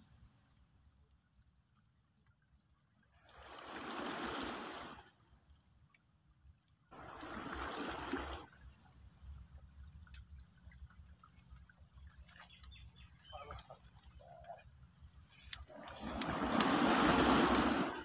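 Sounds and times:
small waves washing against rocks: 3.1s - 5.2s, 6.9s - 8.8s, 15.3s - 18.0s
faint clicks: 9.2s - 16.8s.

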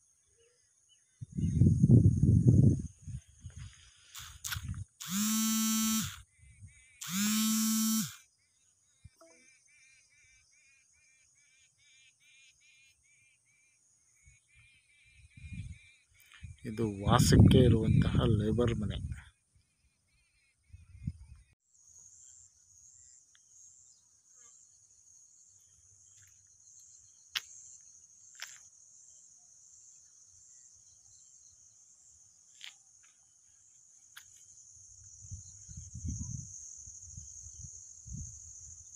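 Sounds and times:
insects trilling: 0.0s - 38.9s.

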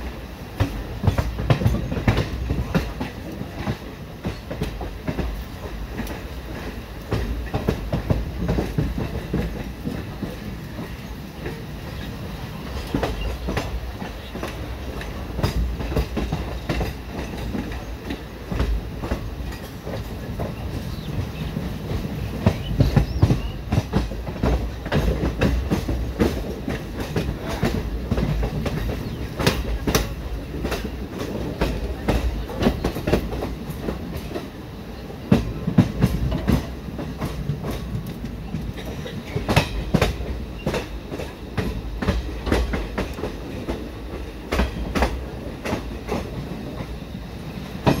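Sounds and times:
train wheels rumbling on track: 0.0s - 48.0s
wheels clacking over rail joints: 0.0s - 48.0s.

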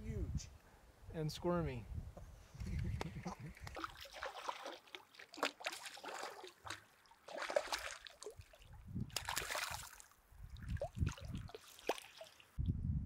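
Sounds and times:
fish splashing in water: 3.6s - 12.6s.

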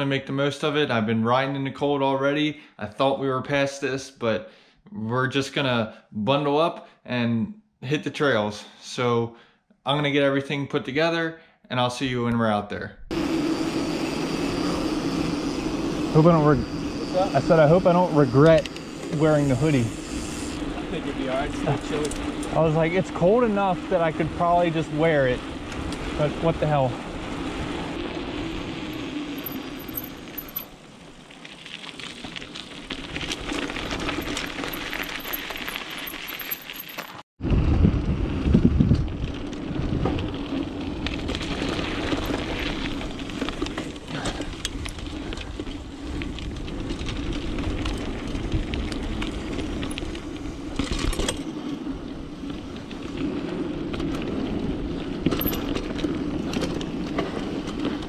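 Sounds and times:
bike tyres rolling on dirt: 14.6s - 58.0s
bike chain rattling and clicking: 28.9s - 30.7s, 33.2s - 37.2s, 55.3s - 56.6s.

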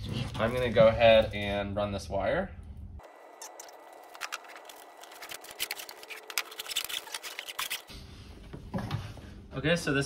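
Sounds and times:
cable rustling and clicking: 3.4s - 7.9s.

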